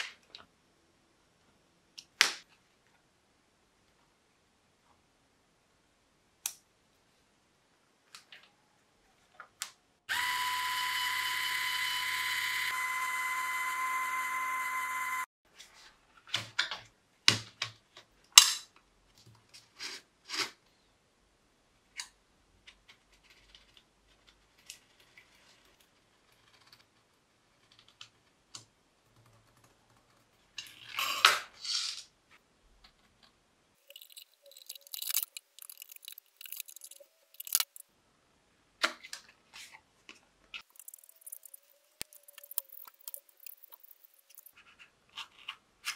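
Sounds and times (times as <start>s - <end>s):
small motor high whine: 10.1s - 15.3s.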